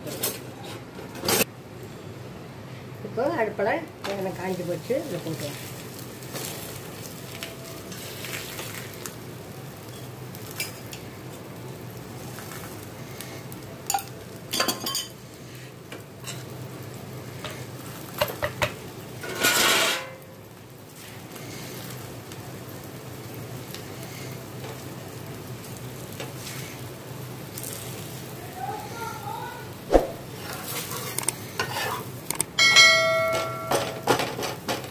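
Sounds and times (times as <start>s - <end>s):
flatbread sizzling in oil: 3.2s - 34.9s
rushing noise: 29.9s - 30.3s
metal utensil clinking on pan: 31.2s - 34.6s.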